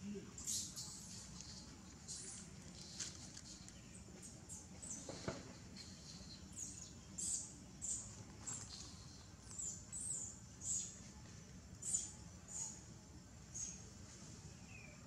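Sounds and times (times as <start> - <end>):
small animal chirping: 0.4 - 3.7.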